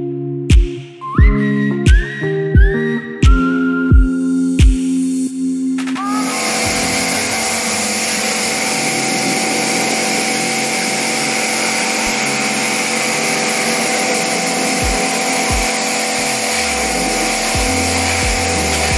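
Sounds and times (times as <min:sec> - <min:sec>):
water jet hissing on metal coil: 0:04.9 - 0:18.9
pressure washer running: 0:05.1 - 0:18.9.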